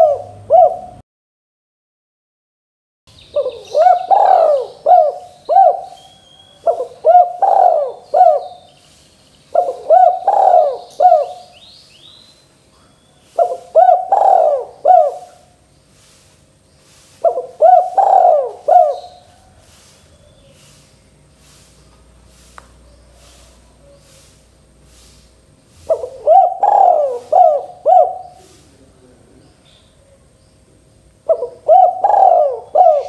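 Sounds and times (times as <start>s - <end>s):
dove cooing: 0.0s - 1.0s, 3.3s - 8.7s, 9.5s - 11.6s, 12.8s - 15.6s, 16.9s - 20.8s, 21.4s - 25.1s, 25.7s - 30.3s, 31.2s - 33.0s.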